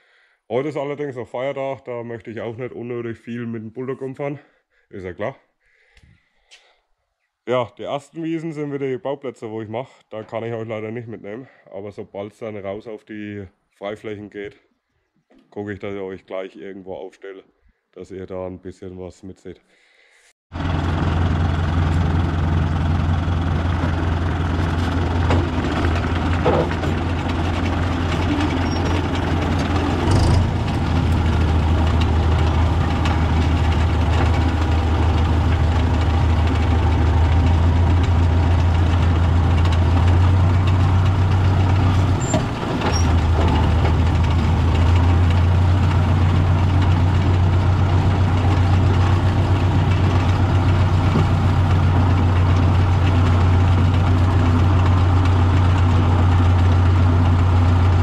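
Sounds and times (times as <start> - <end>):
tractor diesel engine running: 20.5 - 58.0.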